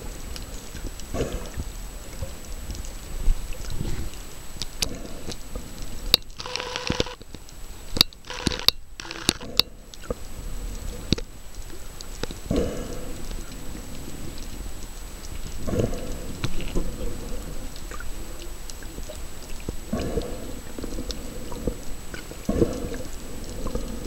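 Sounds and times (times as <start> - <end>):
muffled underwater noise: 0.0 - 24.0
sharp clicks: 6.1 - 10.1.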